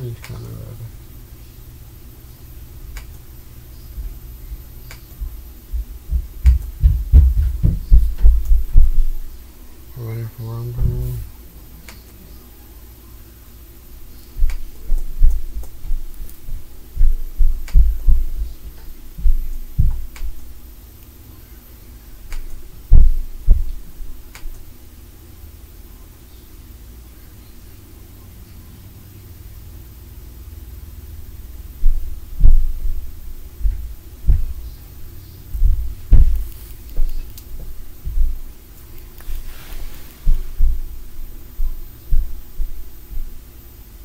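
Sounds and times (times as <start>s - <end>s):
dull thuds of stomping: 5.2s - 9.2s, 15.2s - 20.4s, 31.8s - 34.7s, 35.5s - 38.5s, 41.6s - 43.3s.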